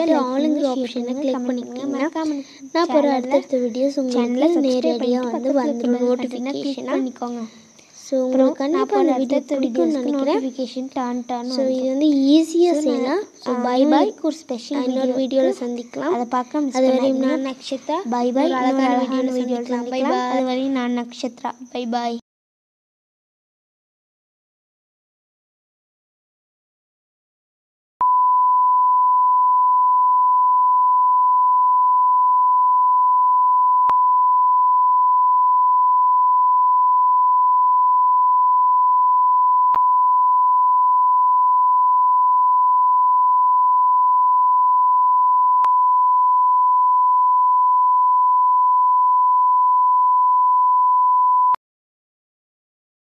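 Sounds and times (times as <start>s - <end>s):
steady test tone beep: 28.0s - 51.6s.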